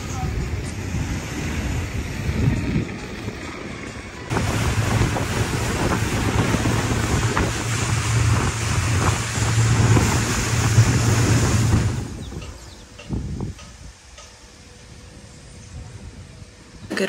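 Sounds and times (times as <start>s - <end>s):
low motor hum: 0.0s - 16.8s
wind buffeting microphone: 0.0s - 16.9s
water rushing past hull: 4.3s - 12.9s.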